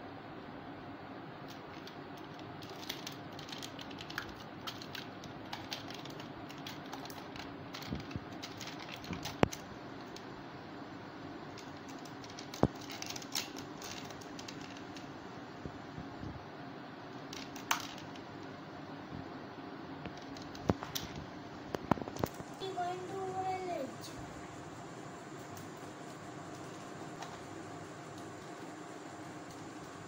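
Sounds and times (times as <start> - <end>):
steady low hum: 0.0 - 30.0
plastic toys clicking and clattering: 1.4 - 10.3, 11.5 - 15.1, 17.2 - 18.5, 20.1 - 21.2.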